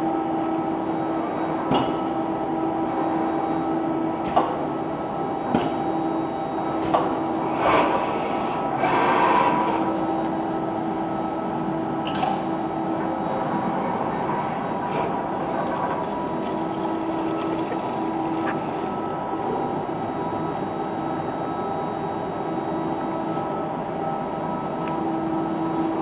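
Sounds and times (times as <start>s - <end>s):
robot arm drives humming: 5.8s - 26.0s.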